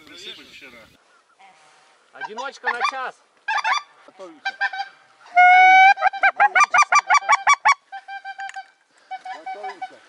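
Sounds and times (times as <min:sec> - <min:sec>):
goose call honking: 0:02.2 - 0:10.0.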